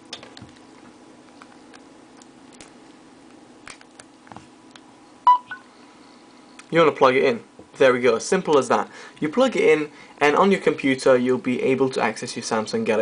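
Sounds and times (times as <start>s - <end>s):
electronic beeps: 5.3s - 5.6s.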